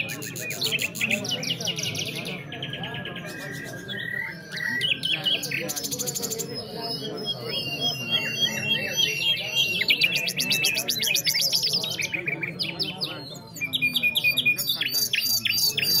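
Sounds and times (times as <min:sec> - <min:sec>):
nightingales singing: 0:00.0 - 0:16.0.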